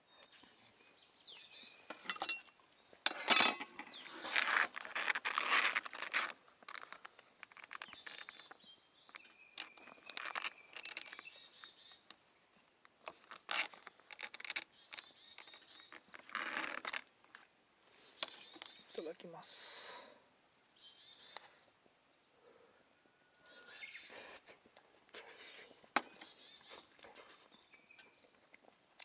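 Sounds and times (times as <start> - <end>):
plastic pouch crinkling: 4.2 - 8.5, 9.6 - 11.3
faint bird chirps: 7.4 - 12.1, 14.4 - 16.2, 20.5 - 24.5, 25.2 - 28.7.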